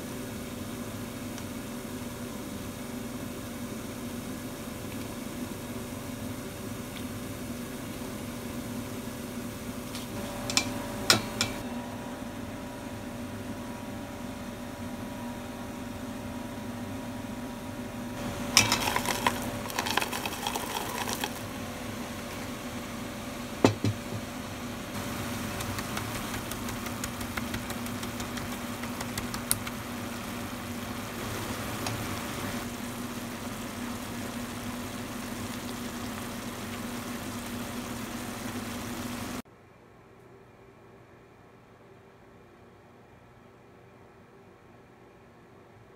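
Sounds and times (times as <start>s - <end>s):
steady machine hum: 0.0s - 39.4s
utensils clattering against a pan: 18.5s - 21.4s.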